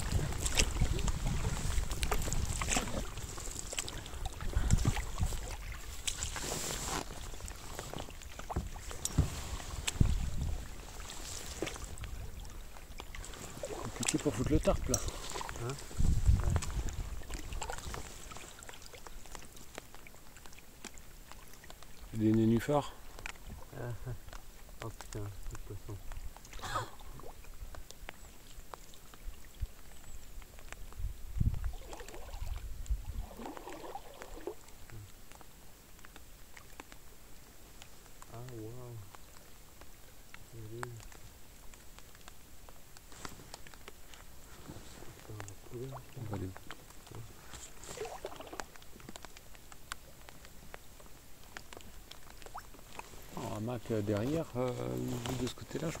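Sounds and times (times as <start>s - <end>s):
paddle strokes with water splashing: 0.0s - 56.0s
paddle knocking against hull: 7.9s - 10.6s.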